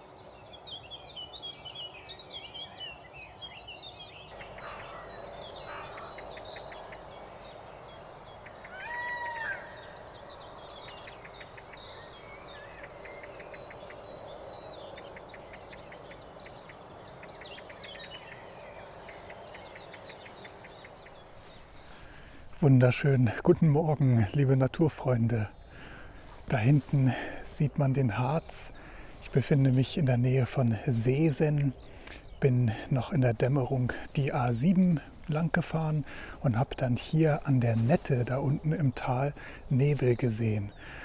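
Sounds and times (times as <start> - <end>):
birds singing and calling: 0.0 - 41.0
drawn-out bird call: 4.3 - 22.8
outdoor hiss: 35.1 - 36.5.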